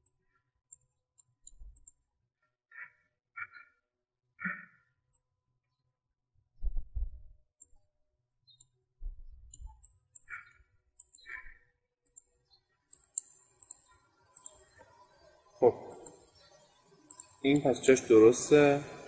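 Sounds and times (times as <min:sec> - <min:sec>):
mouse and keyboard clicks: 0:00.0 - 0:02.0, 0:07.6 - 0:07.9, 0:09.4 - 0:14.9, 0:15.9 - 0:16.3, 0:17.1 - 0:17.7
low dull thumps: 0:06.6 - 0:07.4.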